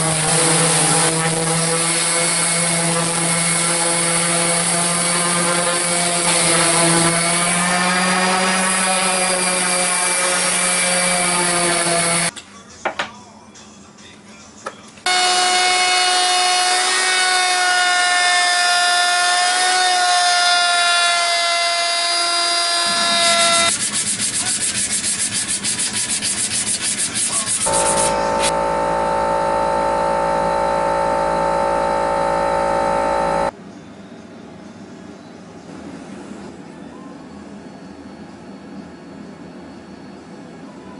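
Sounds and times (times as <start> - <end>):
sandpaper scratching on wood: 23.1 - 28.5
lower machine whine: 27.6 - 33.6
machine whine: 27.6 - 33.6.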